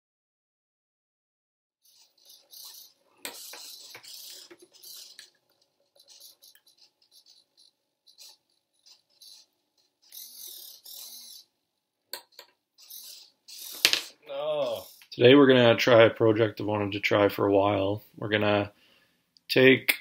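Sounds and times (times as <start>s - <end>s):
servo motors whirring: 1.8s - 11.5s, 12.2s - 15.1s.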